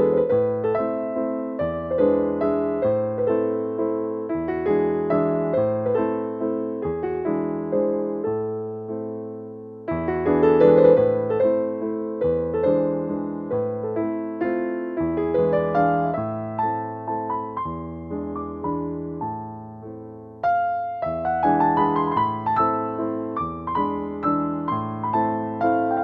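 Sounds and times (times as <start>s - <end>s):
gentle piano melody: 0.0s - 26.0s.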